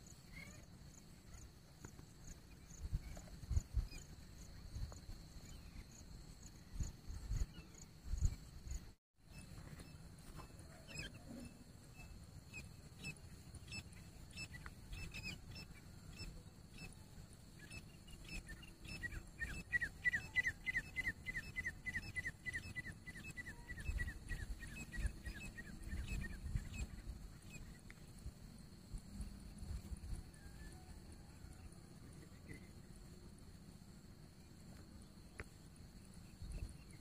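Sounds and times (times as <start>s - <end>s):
francolin calling: 17.6s - 27.8s.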